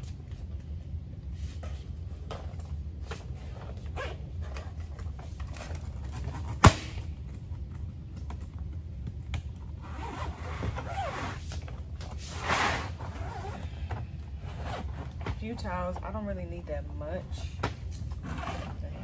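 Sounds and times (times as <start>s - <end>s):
low hum: 0.0s - 19.0s
suitcase scraping and rustling: 1.4s - 7.0s, 9.8s - 15.8s, 18.0s - 19.0s
zip being pulled: 9.8s - 11.6s, 12.3s - 13.8s, 14.4s - 15.2s, 18.2s - 19.0s.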